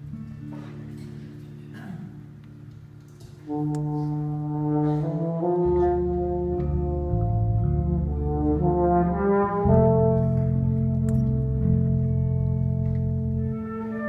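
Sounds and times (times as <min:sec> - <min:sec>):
wind band brass chords: 0:03.4 - 0:14.0.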